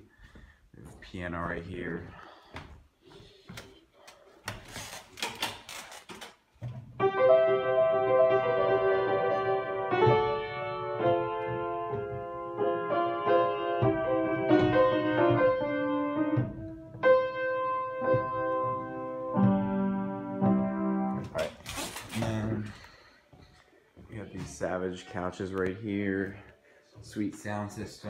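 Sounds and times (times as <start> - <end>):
piano chords ringing: 7.0 - 21.6.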